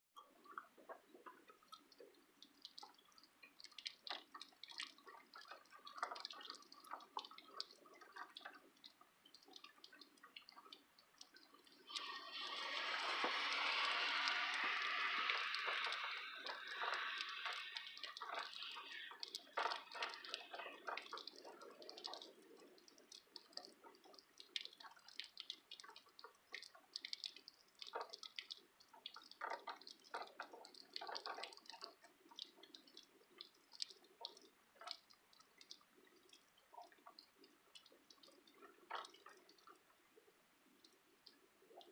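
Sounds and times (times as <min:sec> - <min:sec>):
rainwater dripping: 0:00.2 - 0:41.9
tyres hissing on wet road: 0:11.8 - 0:20.5.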